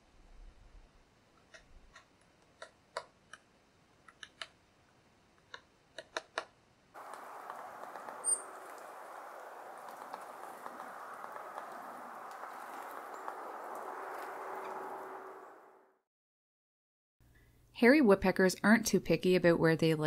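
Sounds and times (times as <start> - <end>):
woodpecker tapping on wood: 5.5 - 14.9
steady outdoor hiss: 6.6 - 15.8.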